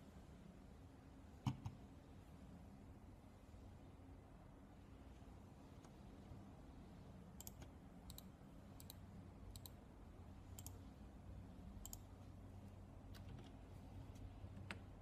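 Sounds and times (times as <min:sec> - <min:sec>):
computer mouse clicks: 0:01.4 - 0:01.8, 0:07.4 - 0:09.8, 0:10.5 - 0:10.8, 0:11.8 - 0:12.1.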